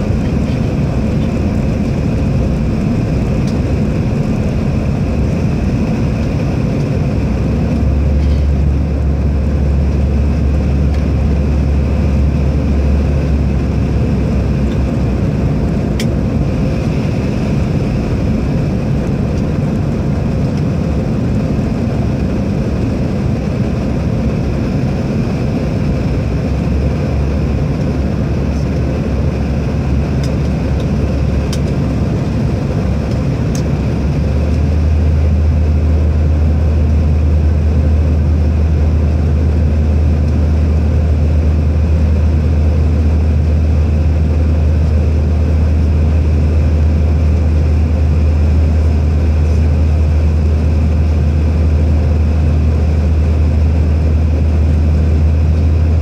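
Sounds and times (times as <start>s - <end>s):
airliner cabin engine drone: 0.0s - 56.0s.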